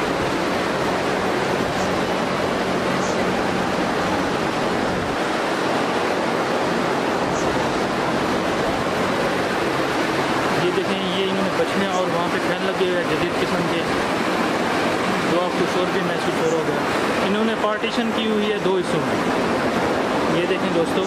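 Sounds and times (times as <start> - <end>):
low motor hum: 0.0 - 15.3
cooling fans rushing air: 0.0 - 21.0.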